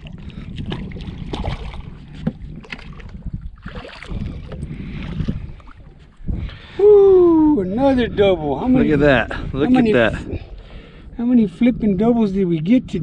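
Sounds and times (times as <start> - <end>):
water splashes: 0.0 - 6.7
wind rumbling on microphone: 0.0 - 13.0.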